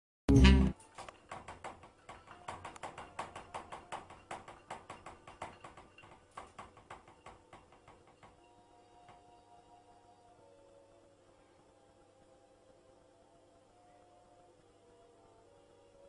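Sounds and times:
cat pawing washing machine door: 1.0s - 8.4s.

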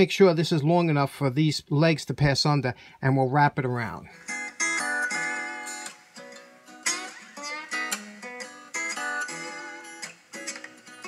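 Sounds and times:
acoustic guitar music: 4.1s - 11.0s.

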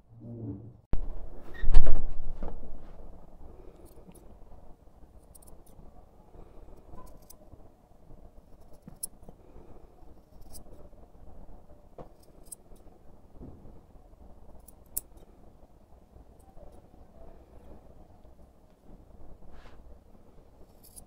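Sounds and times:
faint low rumble: 0.0s - 21.0s
scissors snipping fur: 7.0s - 7.4s, 10.2s - 10.8s.

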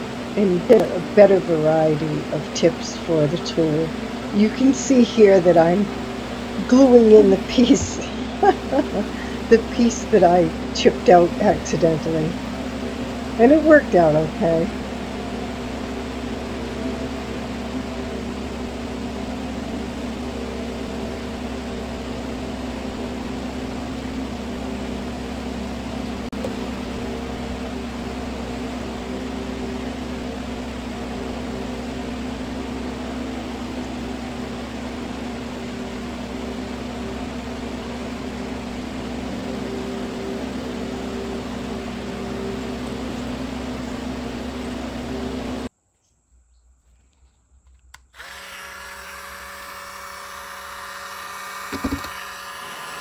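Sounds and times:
fan mechanical hum: 0.0s - 53.0s.

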